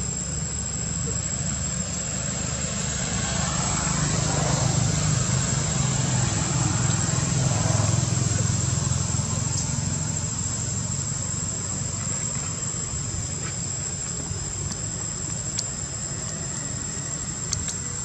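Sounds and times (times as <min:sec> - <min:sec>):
high-pitched insect drone: 0:00.0 - 0:18.0
faint ticks: 0:13.4 - 0:16.6, 0:17.4 - 0:18.0.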